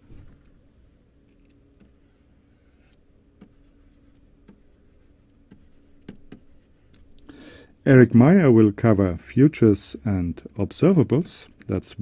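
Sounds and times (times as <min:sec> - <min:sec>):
stylus scratching on tablet: 0:01.9 - 0:06.9.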